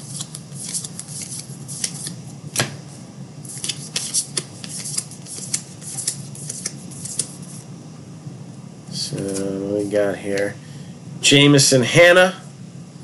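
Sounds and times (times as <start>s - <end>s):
cards flicking and rubbing: 0.0s - 2.8s, 3.4s - 7.6s
low steady hum: 0.0s - 13.0s.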